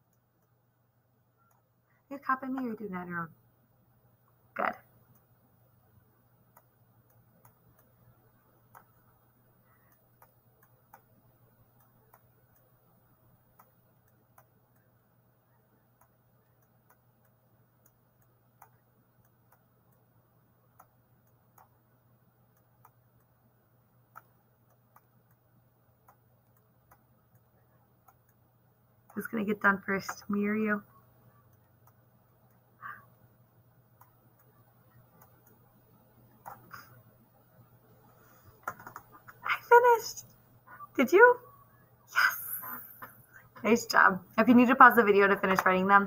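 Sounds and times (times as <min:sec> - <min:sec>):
faint steady hum: 0:00.0 - 0:46.0
computer mouse clicks: 0:06.5 - 0:23.4, 0:24.0 - 0:33.2, 0:33.9 - 0:37.2, 0:38.1 - 0:39.5.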